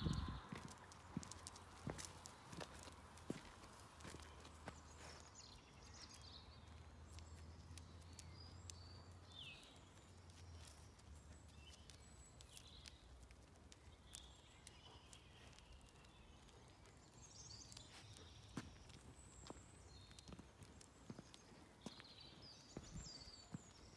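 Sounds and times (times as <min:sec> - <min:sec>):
footsteps on gravel: 0:00.0 - 0:05.3
small birds chirping: 0:00.0 - 0:23.9.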